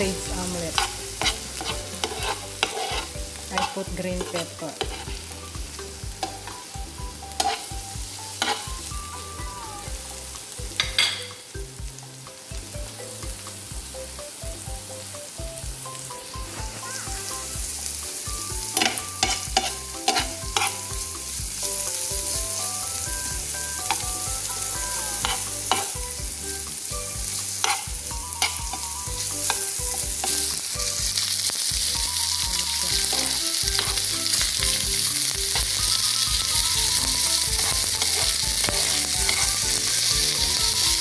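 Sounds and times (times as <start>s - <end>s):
vegetables sizzling in oil: 0.0s - 41.0s
metal spoon scraping a pan: 0.4s - 5.3s, 7.3s - 8.7s, 18.7s - 21.0s, 23.7s - 26.0s, 27.4s - 30.6s, 33.1s - 34.4s, 36.8s - 41.0s.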